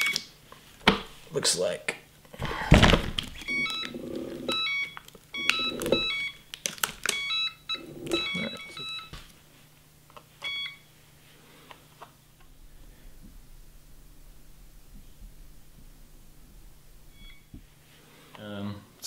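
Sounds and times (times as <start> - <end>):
electronic chirping beeps: 3.4 - 6.5, 7.1 - 9.2, 10.4 - 10.9, 12.5 - 17.7.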